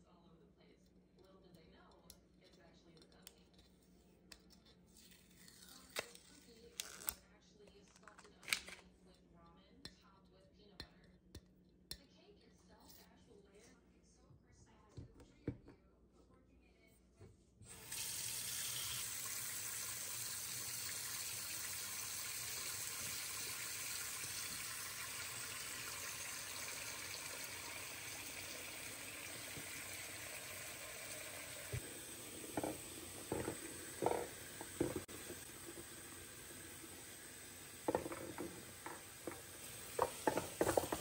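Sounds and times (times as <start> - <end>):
tap water running into sink: 17.7 - 41.0
glass jars clinking in sink: 32.5 - 35.3.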